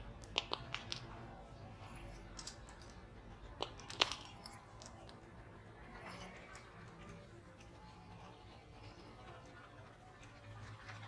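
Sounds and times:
sharp clicks and ticks: 0.0s - 1.3s, 2.1s - 5.3s.

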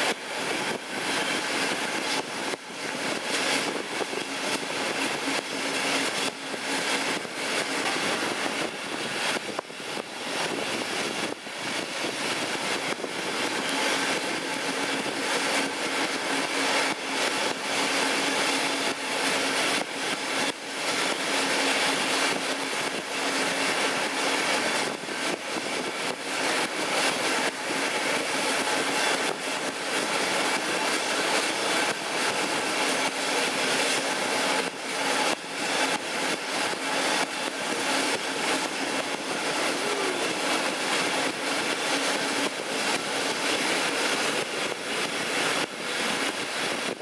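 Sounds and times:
wind rushing: 0.0s - 16.8s
diesel locomotive engine drone: 0.0s - 47.0s
train wheel noise: 0.0s - 47.0s.

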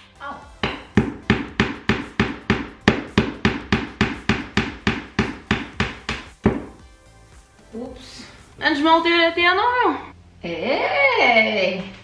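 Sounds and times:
hammer striking nail: 0.6s - 6.8s.

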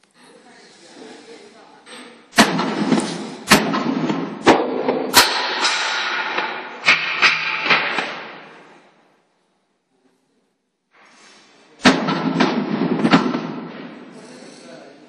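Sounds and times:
metal clanks and bangs: 1.9s - 8.7s, 11.8s - 14.2s
loud bang: 2.3s - 8.9s, 11.8s - 14.2s.

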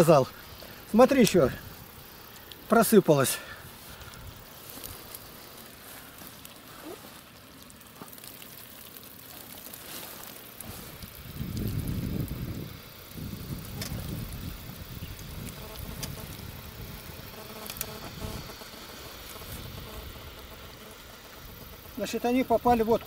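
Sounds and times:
net rustling: 3.6s - 11.0s.

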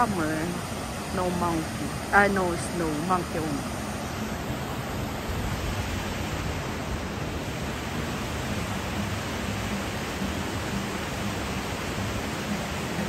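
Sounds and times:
river rushing over stones: 0.0s - 13.0s.

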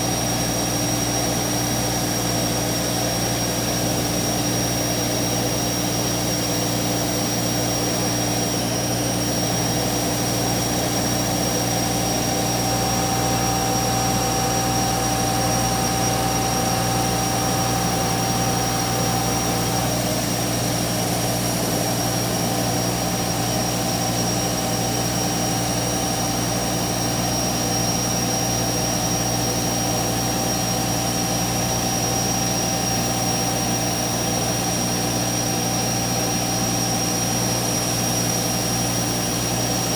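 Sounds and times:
router spindle whining: 6.3s - 25.2s.

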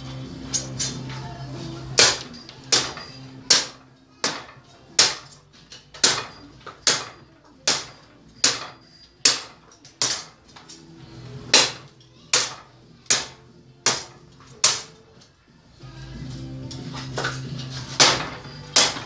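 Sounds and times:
sword chopping into wooden post: 18.0s - 19.0s.

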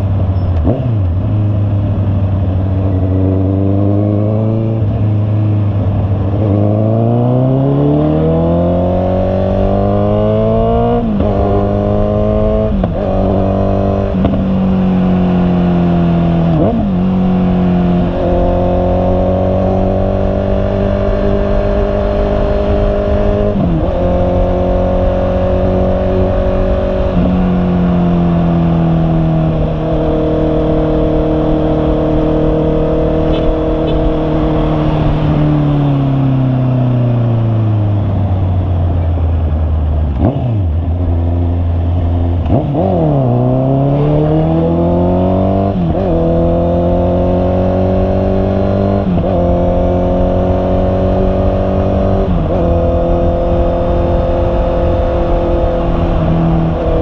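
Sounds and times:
motorcycle engine revving: 0.0s - 57.0s
wind and road noise: 0.0s - 57.0s.

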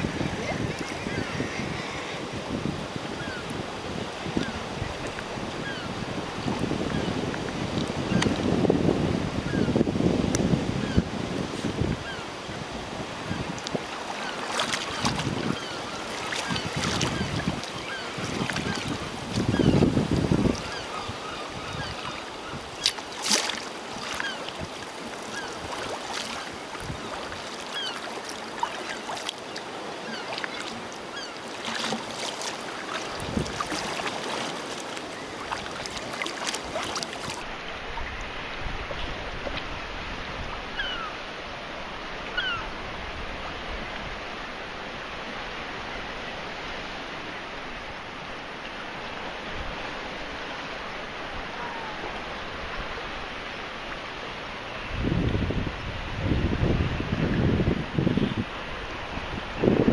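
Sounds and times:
seabirds calling: 0.0s - 8.7s, 9.4s - 9.8s, 10.7s - 38.3s, 40.5s - 41.2s, 42.1s - 42.8s
water lapping and splashing: 0.0s - 59.9s
paddle stroke splashes: 11.2s - 39.9s.

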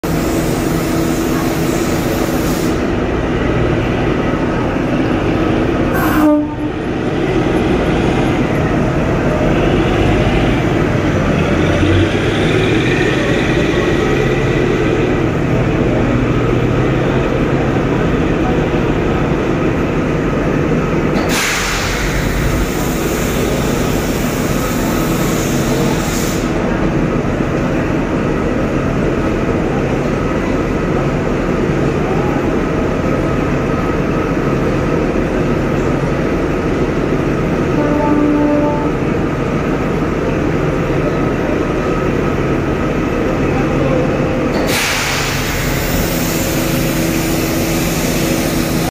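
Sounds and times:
train rumbling over track: 0.0s - 48.9s
horn-like steady tone: 5.9s - 6.8s, 37.8s - 39.1s
rushing hissing noise: 21.2s - 26.8s, 44.6s - 48.9s.

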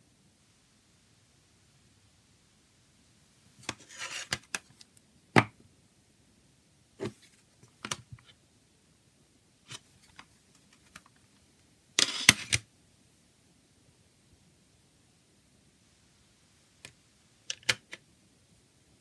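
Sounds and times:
plastic case scraping: 3.6s - 4.5s.

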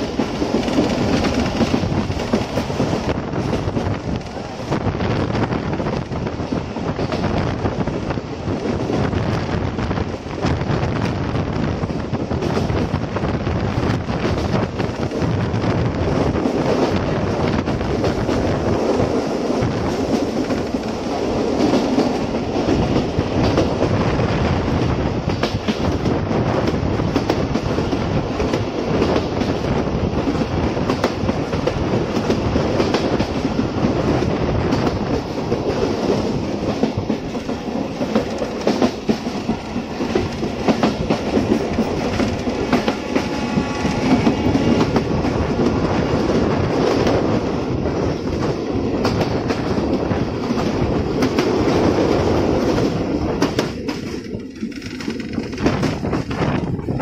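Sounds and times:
wheels clicking over rail joints: 0.0s - 4.7s, 24.7s - 57.0s
train rumbling at speed: 0.0s - 57.0s.

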